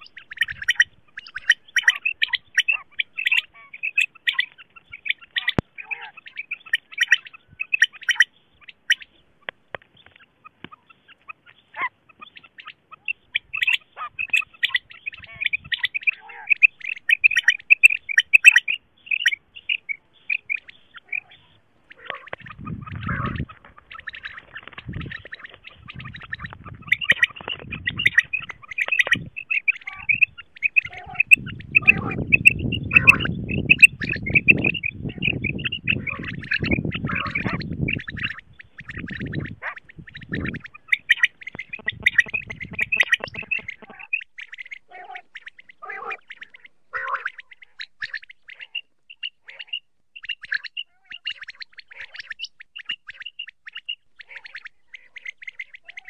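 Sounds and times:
quail high rapid chirping: 0.0 - 56.0
low rumbling noise: 41.5 - 44.0.

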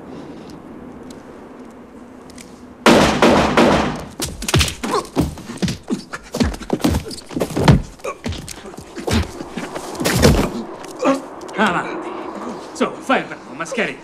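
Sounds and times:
thuds and knocks of scuffle: 4.2 - 10.6.

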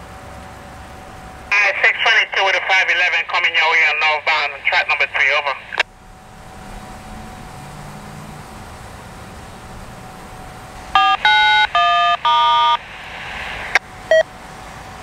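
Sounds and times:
radio electronic tones: 1.5 - 5.8, 11.0 - 14.2
static hiss: 12.5 - 14.2.

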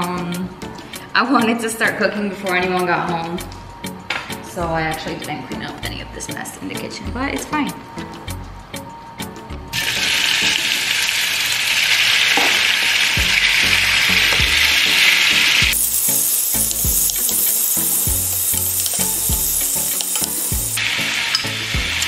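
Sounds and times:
chicken sizzling in hot oil: 9.8 - 22.0
food stirred in a pan: 14.8 - 21.7.

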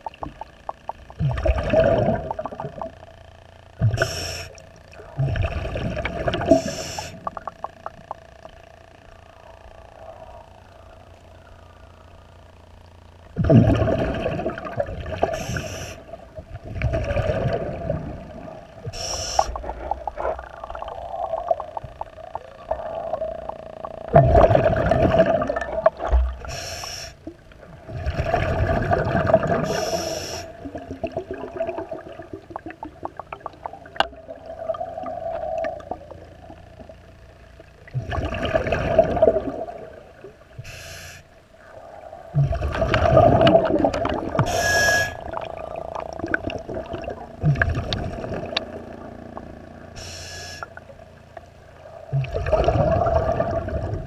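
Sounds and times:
exhaled bubbles rumbling underwater: 0.0 - 54.0
steady hum: 0.0 - 54.0
regulator inhalation hiss: 3.9 - 4.6, 6.5 - 7.3, 15.3 - 16.2, 18.8 - 19.6, 26.4 - 27.3, 29.6 - 30.6, 40.6 - 41.4, 44.4 - 45.2, 50.0 - 50.8
faint clicks and scraping: 18.6 - 24.2.

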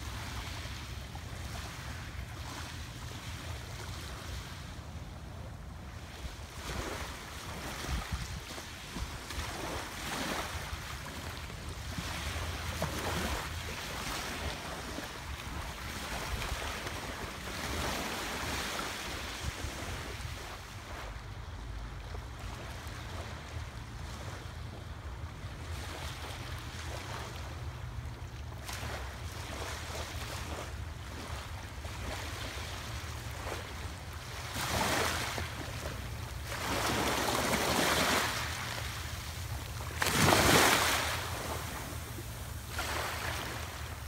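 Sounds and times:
wind rumbling on microphone: 4.9 - 22.5
waves washing over pebbles: 33.5 - 44.0.

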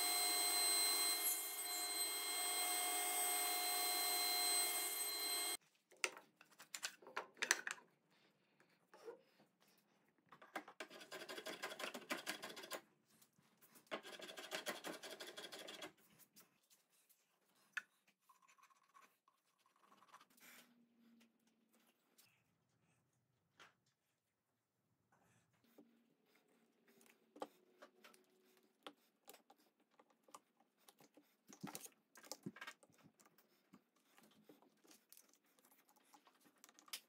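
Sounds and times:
table saw whining: 0.0 - 5.6.

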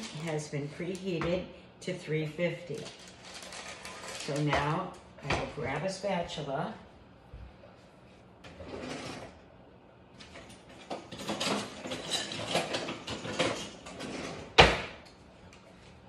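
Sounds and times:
kitchen utensils clattering: 10.2 - 14.6.

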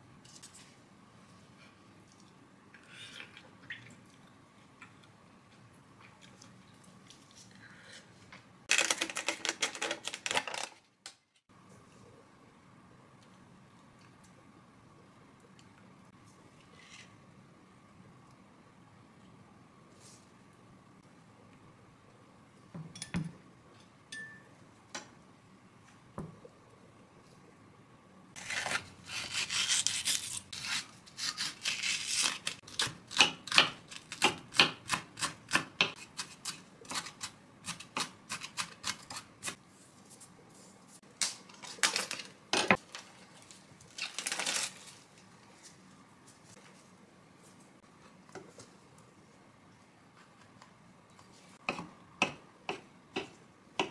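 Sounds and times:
plastic bag crinkle: 8.7 - 10.8, 41.5 - 45.2.

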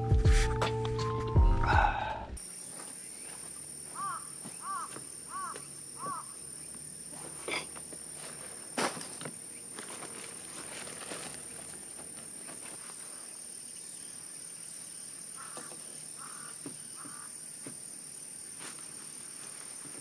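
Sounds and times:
high insect drone: 1.7 - 20.0
footstep on wooden deck: 16.6 - 17.9.

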